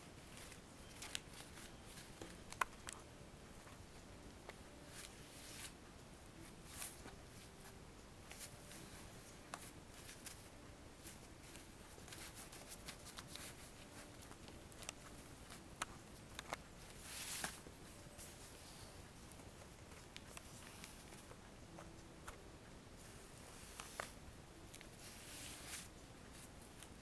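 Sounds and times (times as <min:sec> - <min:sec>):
newspaper rustling: 0:00.2 - 0:03.0, 0:06.4 - 0:19.0, 0:23.0 - 0:27.0.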